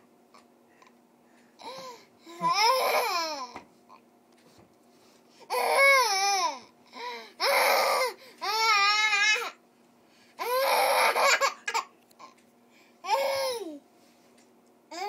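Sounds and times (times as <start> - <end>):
toddler wailing: 2.4 - 3.5, 7.4 - 9.6, 10.4 - 11.5.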